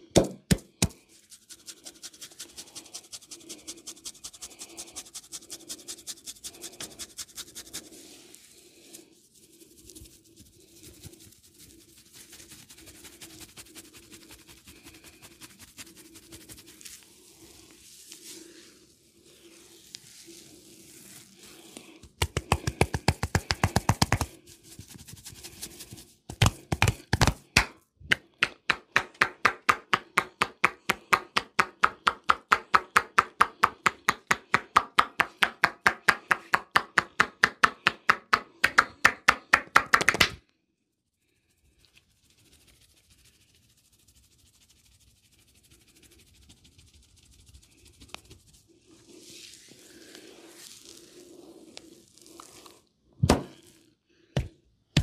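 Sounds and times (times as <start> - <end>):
hands striking in percussive massage: 0.0 - 1.0, 22.2 - 24.4, 26.3 - 40.4.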